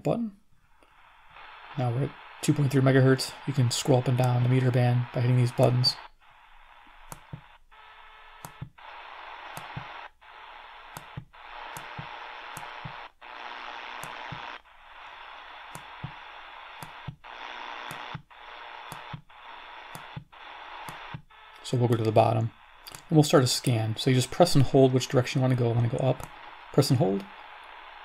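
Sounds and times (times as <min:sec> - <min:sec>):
radio shortwave static hiss: 0:00.1 - 0:28.0.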